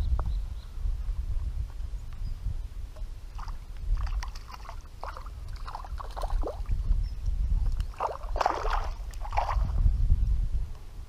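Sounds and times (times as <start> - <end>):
wind rumble on microphone: 0.0 - 11.0
wading splashes in water: 3.3 - 6.7, 7.8 - 9.8.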